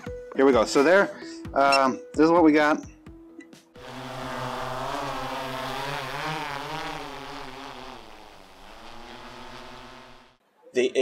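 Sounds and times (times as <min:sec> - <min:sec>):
drone propellers whining: 0:03.8 - 0:10.4.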